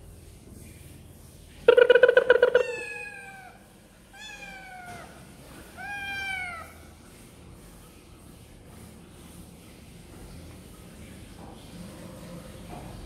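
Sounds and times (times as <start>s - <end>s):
young cats meowing: 2.2s - 6.8s.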